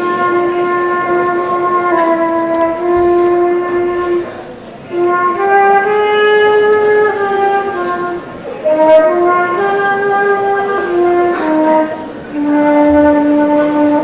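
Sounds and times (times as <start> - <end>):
solo flute slow melody: 0.0 - 14.0.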